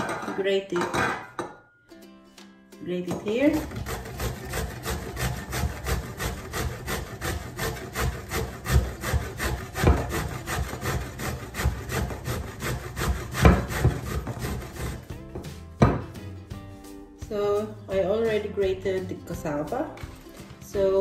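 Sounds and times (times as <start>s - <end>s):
cassava scraping on metal grater: 3.4s - 15.1s.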